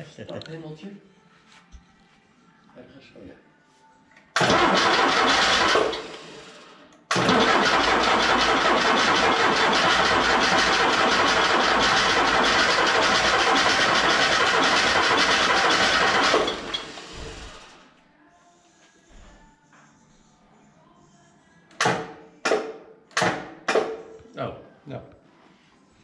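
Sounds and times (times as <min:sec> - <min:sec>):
engine running: 0:07.1 - 0:17.7.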